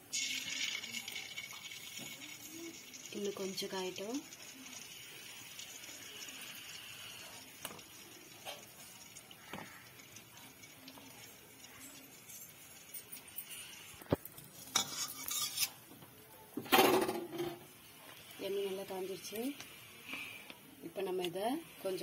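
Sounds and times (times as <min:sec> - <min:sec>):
metal utensils clattering on pots: 0:00.2 - 0:15.9, 0:16.6 - 0:17.7.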